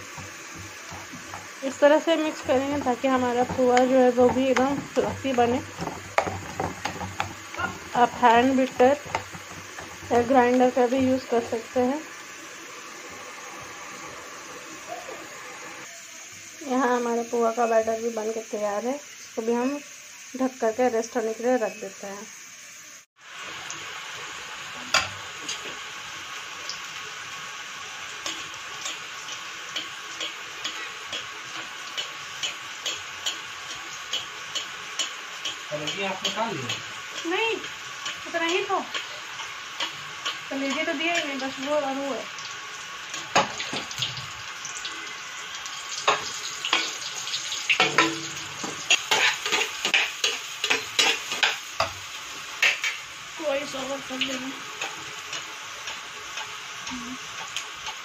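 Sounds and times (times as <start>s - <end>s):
batter sizzling in hot oil: 0.0s - 58.0s
metal spoon scraping pan: 0.2s - 10.6s, 47.8s - 51.6s.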